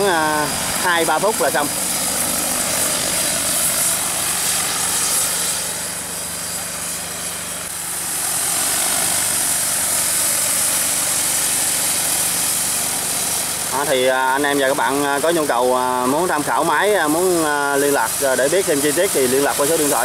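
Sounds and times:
drone rotors whirring: 0:00.0 - 0:14.6.

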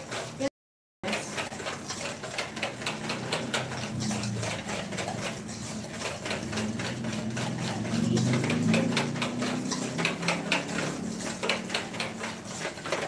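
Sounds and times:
whisk clicking in metal bowl: 0:00.0 - 0:13.0.

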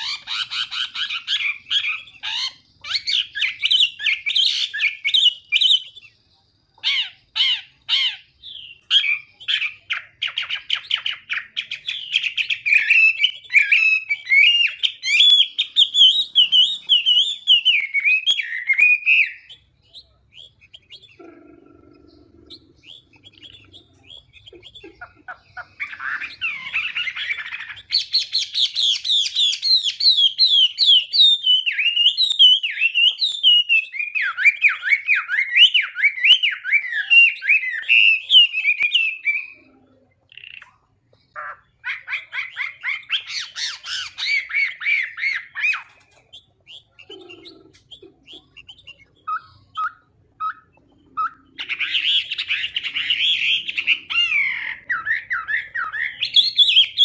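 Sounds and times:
bird singing warbling phrases: 0:00.0 - 0:57.0.

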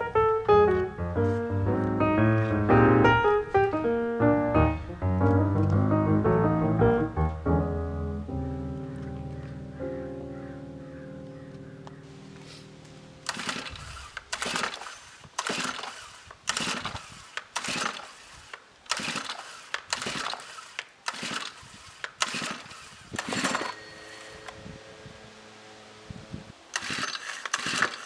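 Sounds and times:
music: 0:00.0 - 0:13.2
recoil starter pulls: 0:13.2 - 0:24.6, 0:26.7 - 0:28.0
engine turning over: 0:13.2 - 0:28.0.

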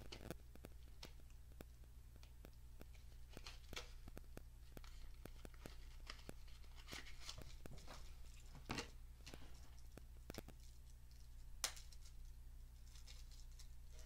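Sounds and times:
low steady hum: 0:00.0 - 0:14.0
packaging rustling: 0:03.0 - 0:09.6.

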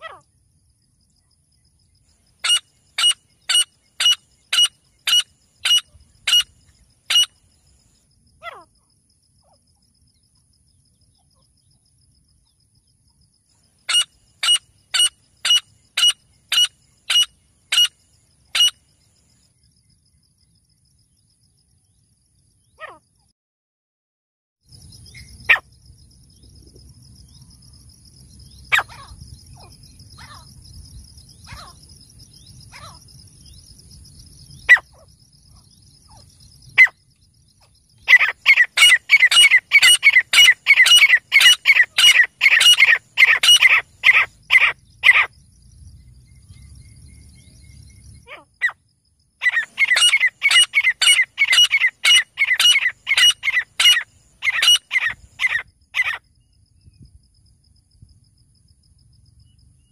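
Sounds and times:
francolin calling: 0:02.3 - 0:07.7, 0:13.8 - 0:19.0, 0:28.4 - 0:30.6, 0:31.3 - 0:33.7, 0:34.4 - 0:45.3, 0:49.4 - 0:57.0.

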